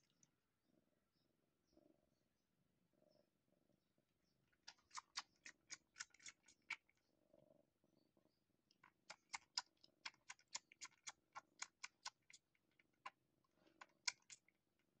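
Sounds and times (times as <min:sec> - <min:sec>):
kitten suckling clicks: 0:04.6 - 0:06.8, 0:08.8 - 0:14.5.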